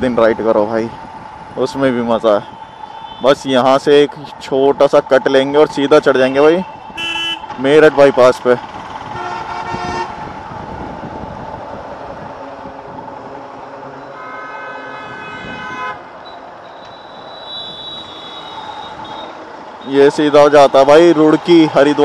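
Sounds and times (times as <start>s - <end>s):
road traffic noise: 0.0s - 22.0s
vehicle horn blasts: 7.0s - 7.5s, 9.1s - 10.2s, 14.0s - 16.0s, 16.8s - 19.4s
wind rush: 8.7s - 13.9s.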